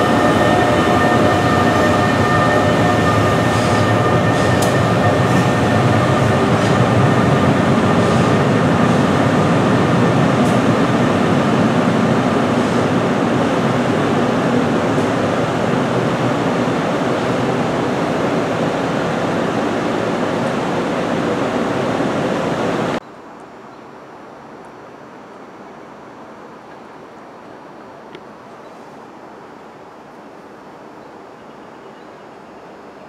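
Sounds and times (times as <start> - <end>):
train rumbling along track: 0.0 - 23.0.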